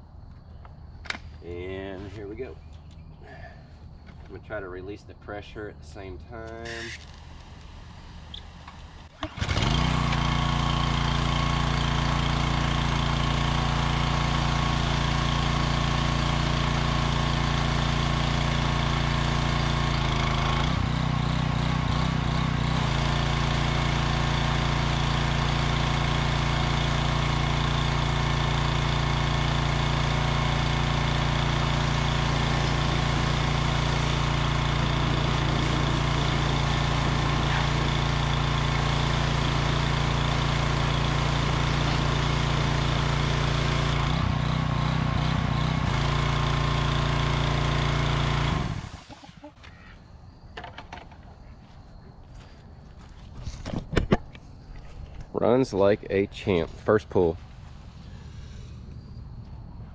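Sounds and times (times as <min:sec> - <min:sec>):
pressure washer engine running: 0:06.3 - 0:49.5
water spray hissing: 0:06.6 - 0:09.2, 0:31.5 - 0:43.9.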